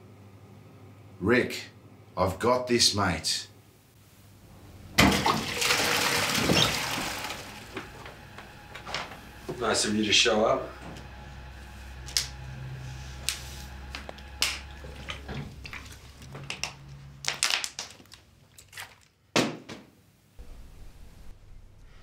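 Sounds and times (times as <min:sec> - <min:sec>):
plastic bottle crinkling: 0:15.7 - 0:19.2.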